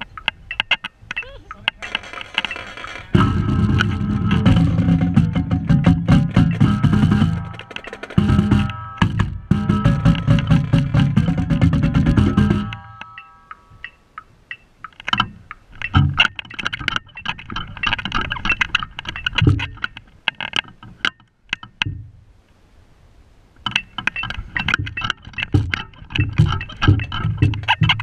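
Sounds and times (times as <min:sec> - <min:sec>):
drum rig clattering and rattling: 0:01.7 - 0:13.2, 0:15.1 - 0:20.8, 0:23.7 - 0:28.0.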